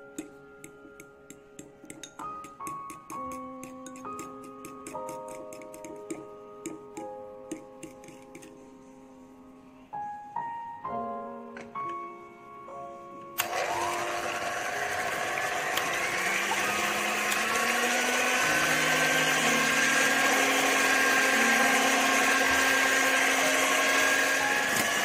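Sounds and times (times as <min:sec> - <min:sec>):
beaters whipping egg whites: 0:13.4 - 0:25.0
electric hand mixer whirring: 0:13.4 - 0:25.0.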